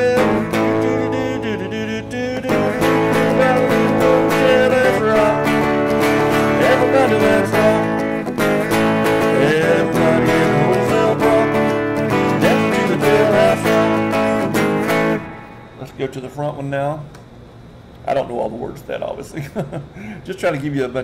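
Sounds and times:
electric guitar through an amp: 0:00.0 - 0:16.1.

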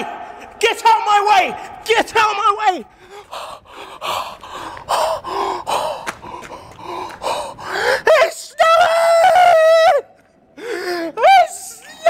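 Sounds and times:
man yelling: 0:00.0 - 0:02.9, 0:08.1 - 0:10.0
man gasping and panting: 0:02.9 - 0:08.1, 0:10.6 - 0:11.2.

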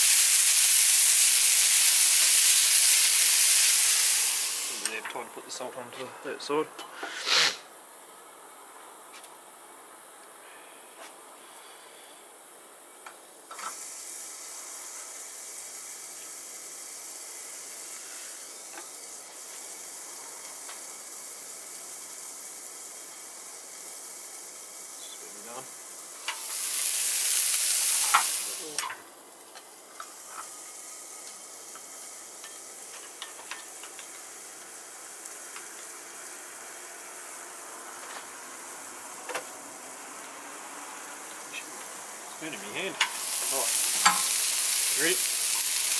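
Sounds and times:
burger patties sizzling on griddle: 0:00.0 - 0:08.0, 0:12.8 - 0:45.9.

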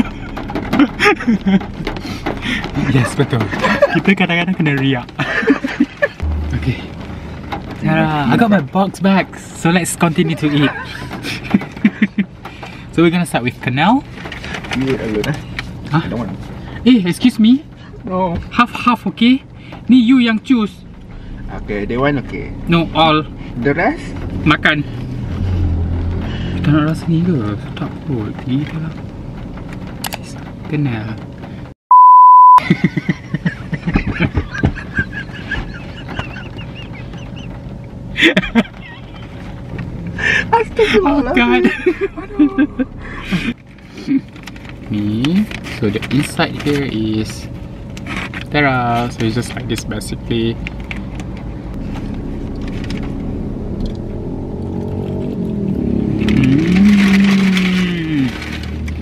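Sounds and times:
man laughing hard: 0:00.0 - 0:01.7, 0:02.6 - 0:04.1, 0:05.2 - 0:06.2, 0:10.2 - 0:12.3, 0:32.6 - 0:37.5, 0:38.2 - 0:39.2, 0:41.6 - 0:43.6
car cabin rumble: 0:00.0 - 0:31.7, 0:32.7 - 0:59.0
high-pitched censor beep: 0:31.9 - 0:32.6
person humming mmm: 0:56.3 - 0:58.2.

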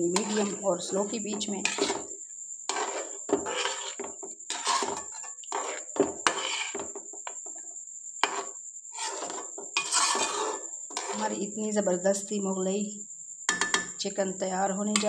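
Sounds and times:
metal spoon scraping a pot: 0:00.0 - 0:06.9, 0:08.2 - 0:11.5.

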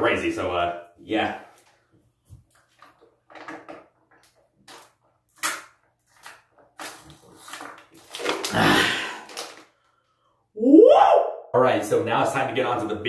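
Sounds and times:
person gulping water: 0:08.3 - 0:09.6
loud breath out: 0:08.5 - 0:10.4.

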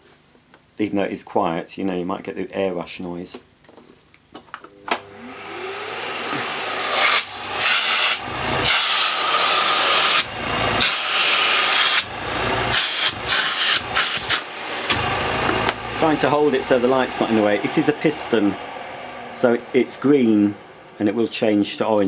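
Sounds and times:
vacuum motor whine: 0:04.7 - 0:21.1
exhaust air gusting on microphone: 0:14.6 - 0:21.8.

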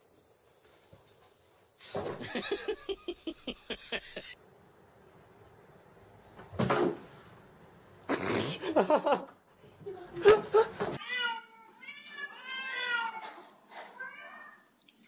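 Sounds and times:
person laughing: 0:02.2 - 0:04.4, 0:08.1 - 0:10.9.

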